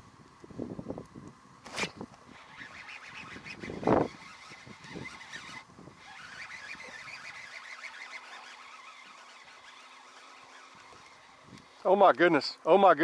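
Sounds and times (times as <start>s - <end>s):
wind: 0.0s - 13.0s.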